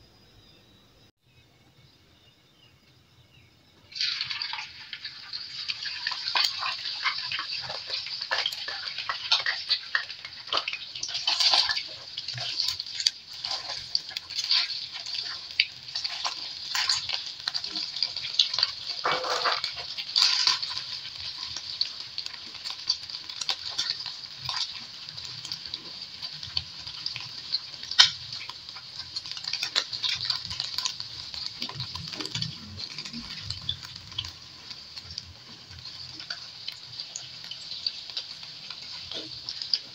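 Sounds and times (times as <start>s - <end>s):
egg sizzling in hot oil: 3.9s - 39.9s
spatula scraping and tapping pan: 6.0s - 24.8s, 26.4s - 34.3s.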